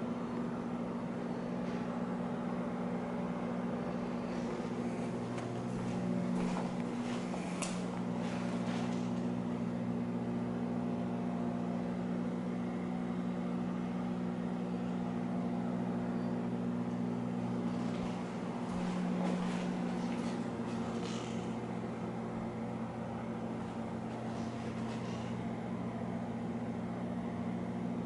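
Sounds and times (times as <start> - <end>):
steady low hum: 0.0 - 28.0
soft rustles or footfalls: 4.4 - 9.2, 17.7 - 21.2.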